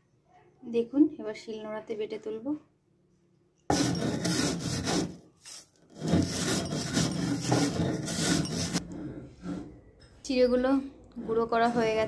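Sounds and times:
stone roller grinding on stone slab: 3.7s - 5.2s, 5.8s - 9.8s, 11.1s - 12.0s.

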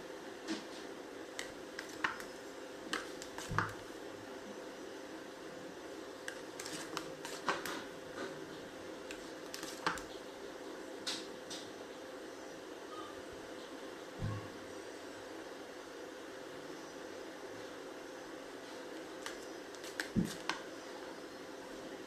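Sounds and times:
steady background hum: 0.0s - 22.0s
spatula clicking and tapping: 1.4s - 3.8s.

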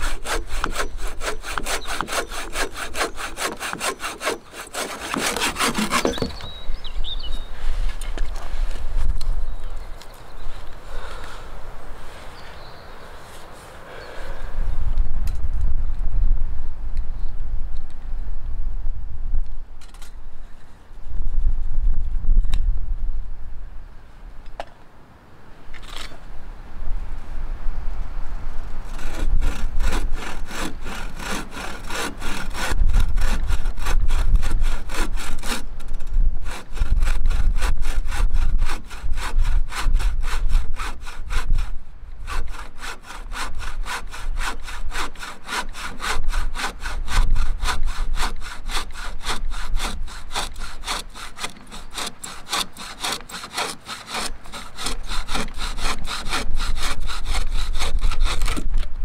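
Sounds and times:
bow saw cutting wood: 0.0s - 6.6s, 28.9s - 58.9s.

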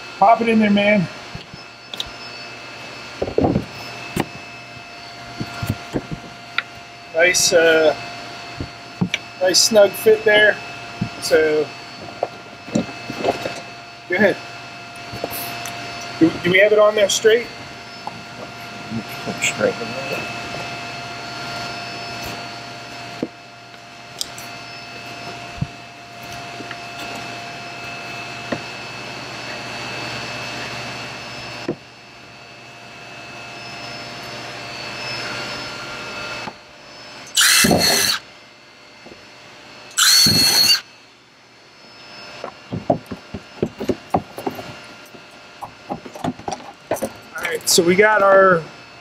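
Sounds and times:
steady background hum: 0.0s - 49.0s
power drill drilling plastic: 37.2s - 38.2s, 39.9s - 40.9s.

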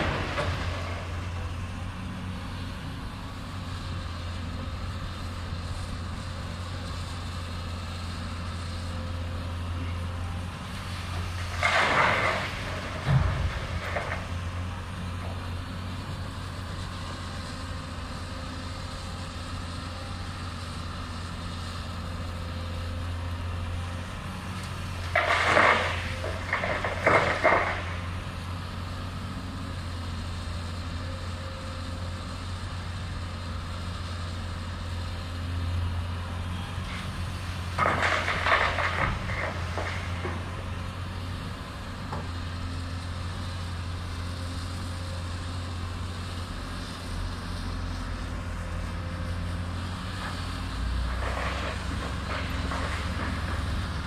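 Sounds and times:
excavator digging stone: 0.0s - 2.4s, 9.3s - 19.2s, 23.8s - 28.5s, 36.5s - 42.9s, 49.1s - 54.0s
excavator diesel engine humming: 0.0s - 54.0s
thud: 11.6s - 14.2s.

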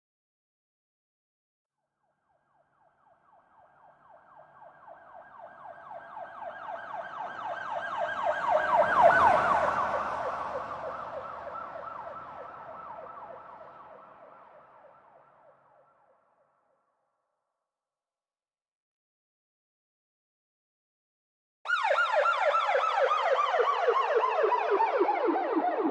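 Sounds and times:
police siren yelping: 3.8s - 14.1s, 21.7s - 25.9s.

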